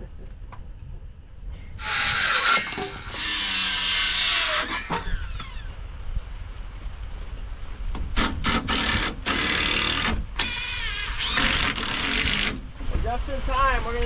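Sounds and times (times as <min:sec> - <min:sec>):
power tool whirring: 0:01.8 - 0:05.4, 0:08.5 - 0:12.6.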